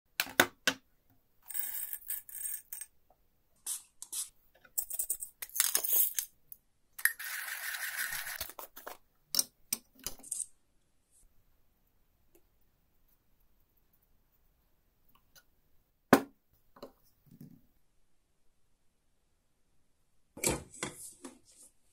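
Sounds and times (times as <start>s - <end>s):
coffee beans rattling: 7.0s - 8.7s.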